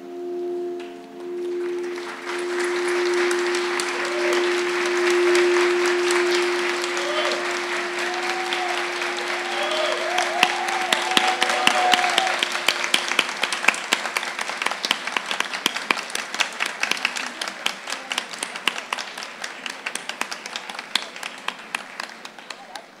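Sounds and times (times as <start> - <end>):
singing bowl ringing: 0.0 - 15.0
audience applauding: 1.2 - 23.0.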